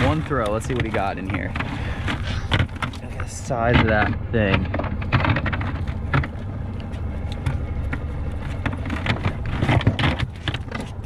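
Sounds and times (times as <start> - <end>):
boat low rumble: 0.0 - 11.0.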